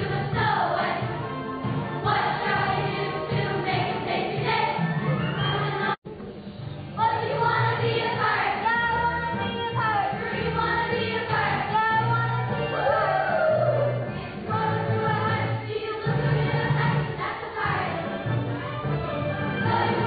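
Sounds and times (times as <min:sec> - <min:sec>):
children singing: 0:00.0 - 0:01.2, 0:02.0 - 0:04.9
instrumental accompaniment with bass: 0:00.0 - 0:20.0.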